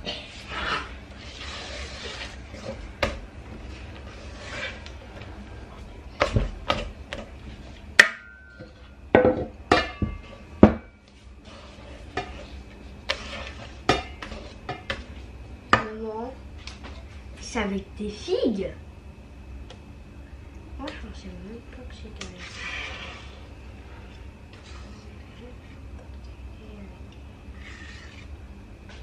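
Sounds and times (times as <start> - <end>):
whisk scraping a metal bowl: 0.5 - 2.8, 4.0 - 4.9, 11.4 - 15.2, 22.4 - 23.5, 24.5 - 25.2, 27.5 - 28.3.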